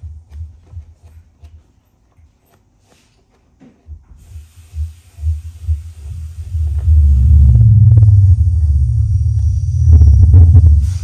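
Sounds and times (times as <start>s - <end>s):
low thumps through speaker: 3.7s - 11.0s
steady hiss: 4.0s - 11.0s.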